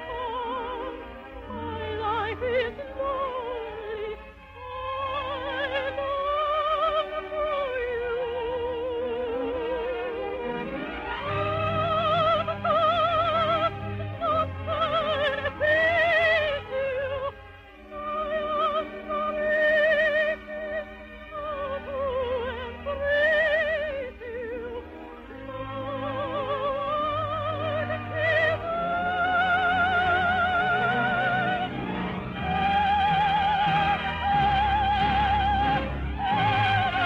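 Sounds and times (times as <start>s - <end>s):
orchestral accompaniment: 0.0s - 37.0s
soprano singing with vibrato: 0.0s - 37.0s.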